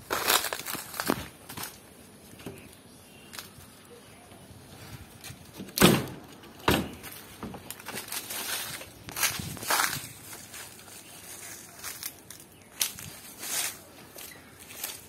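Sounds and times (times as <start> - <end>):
footsteps crunching dry leaves: 0.0 - 2.2, 6.9 - 15.0.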